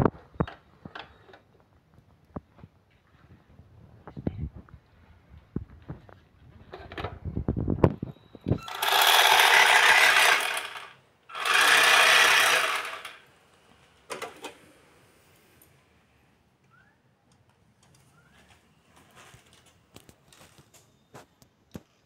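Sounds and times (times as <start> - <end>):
toy car electric motor: 8.6 - 13.2.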